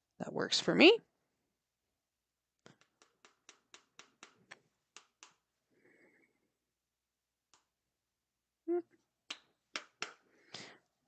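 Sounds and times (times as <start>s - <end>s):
hammer tapping tack into wood: 2.7s - 5.4s.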